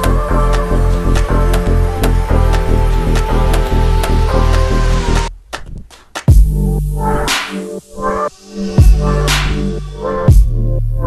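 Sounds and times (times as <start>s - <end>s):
music with a steady beat: 0.0s - 11.0s.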